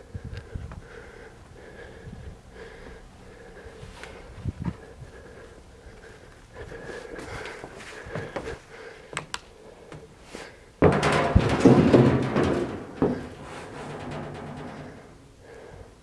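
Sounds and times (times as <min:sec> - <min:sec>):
sharp knocks: 0:10.8 - 0:15.3
loud rattling rumble: 0:10.8 - 0:15.8.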